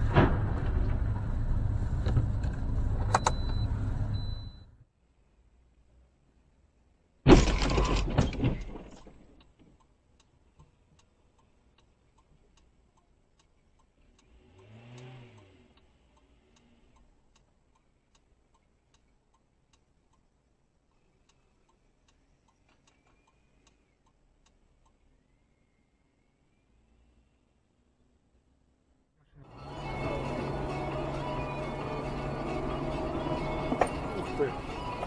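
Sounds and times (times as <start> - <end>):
car collision crunch: 0.0 - 2.7, 7.3 - 9.4, 31.8 - 35.0
faint steady ticking: 9.3 - 29.0
car engine revving: 14.0 - 17.1, 29.4 - 35.0.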